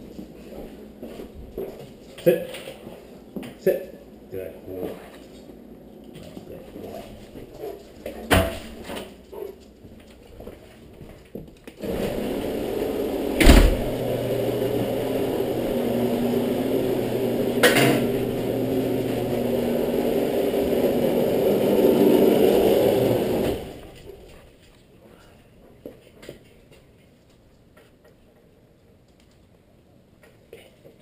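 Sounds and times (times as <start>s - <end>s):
garage door motor hum and rattle: 11.8s - 24.1s
loud thump: 13.4s - 14.0s.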